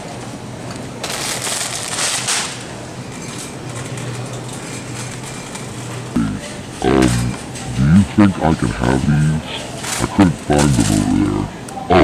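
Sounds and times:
crinkling rustle: 1.0s - 2.7s
steady low hum: 2.8s - 12.0s.

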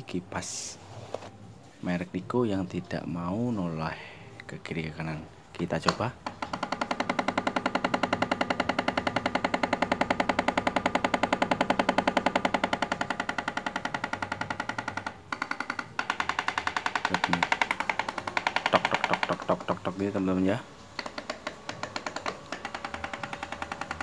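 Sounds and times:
electric fan running: 3.6s - 24.0s
rapid clicking of fan gearbox: 5.8s - 24.0s.

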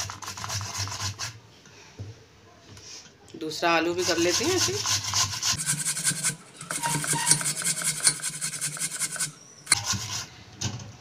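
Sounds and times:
potato grated on metal grater: 0.0s - 1.4s, 3.9s - 10.3s.

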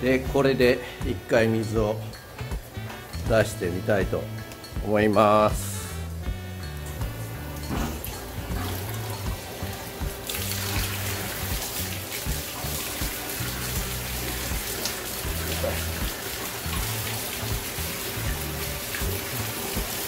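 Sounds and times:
background music: 0.0s - 20.0s
water pouring and splashing: 6.8s - 20.0s.

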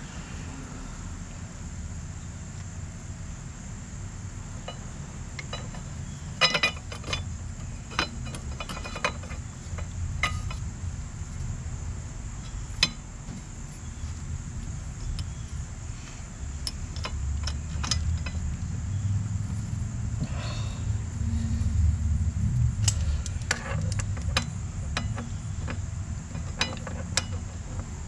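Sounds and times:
steady low hum: 0.0s - 28.0s
high-pitched whine: 2.9s - 27.3s
small metallic clicks and clinks: 5.4s - 10.6s, 16.6s - 18.6s, 22.8s - 28.0s.

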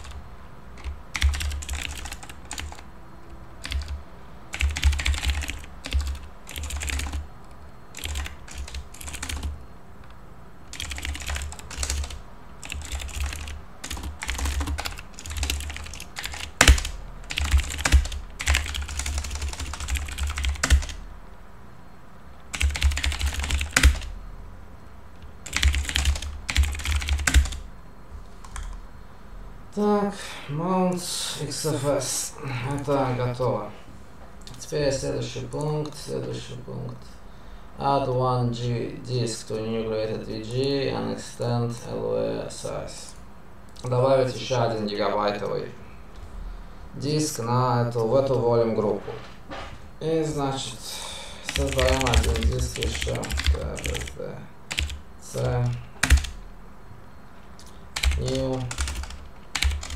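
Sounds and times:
typing on computer keyboard: 0.0s - 0.2s, 0.8s - 2.8s, 3.6s - 9.6s, 10.7s - 21.0s, 22.5s - 24.1s, 25.4s - 27.6s, 51.5s - 56.4s, 57.6s - 59.9s.

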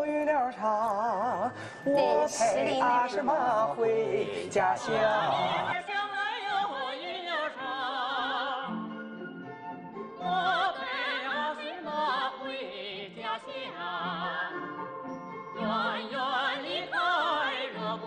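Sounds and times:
person singing operatic folk song: 0.0s - 9.1s, 10.0s - 14.9s, 15.5s - 18.0s.

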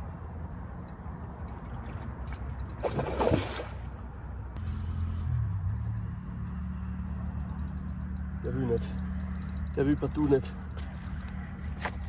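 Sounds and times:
fish splashing in water: 1.7s - 4.0s.

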